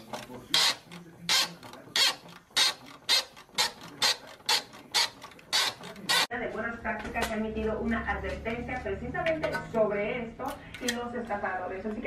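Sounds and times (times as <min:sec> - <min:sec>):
socket ratchet clicking: 0:00.5 - 0:06.3.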